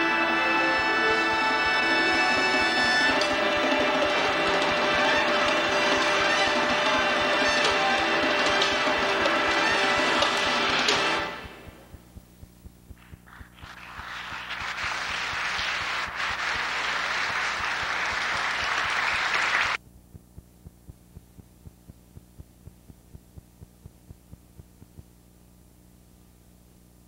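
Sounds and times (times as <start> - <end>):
audience applauding: 0.0 - 11.9, 13.0 - 19.8
faint steady hum: 0.0 - 27.0
soft regular ticking: 11.4 - 13.7, 19.8 - 26.8.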